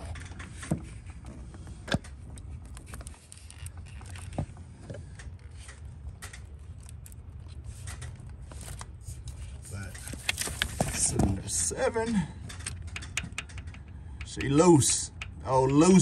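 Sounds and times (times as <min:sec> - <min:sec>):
light metallic clicks and taps: 0:12.5 - 0:16.0.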